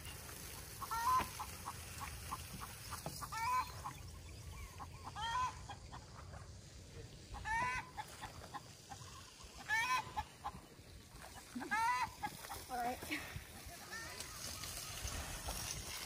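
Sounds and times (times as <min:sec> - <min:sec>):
chicken squawking: 0:00.8 - 0:06.2, 0:07.2 - 0:10.6, 0:11.3 - 0:12.7.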